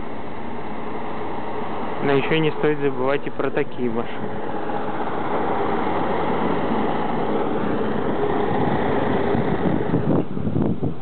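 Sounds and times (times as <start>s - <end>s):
vehicle driving past: 0.8s - 10.5s
wind buffeting microphone: 4.1s - 11.0s.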